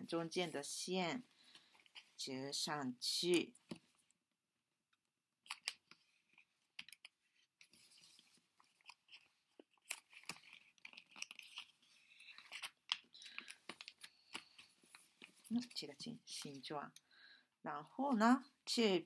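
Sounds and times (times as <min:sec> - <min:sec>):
paper crinkling and rustling: 0:05.5 - 0:16.6.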